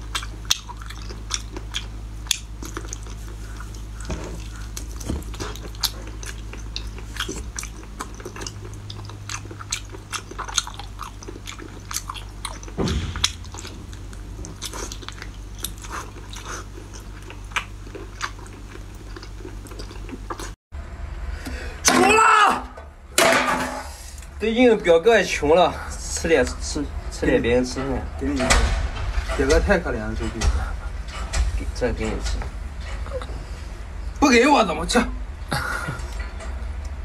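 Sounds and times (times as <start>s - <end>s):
wet chewing and mouth smacks: 0.0s - 20.6s
low hum: 0.0s - 37.0s.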